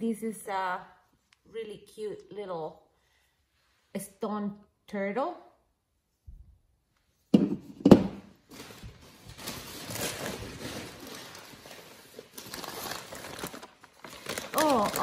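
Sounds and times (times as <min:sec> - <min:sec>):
hard objects knocking on table: 0:07.3 - 0:08.2
packing paper rustling: 0:08.3 - 0:15.0.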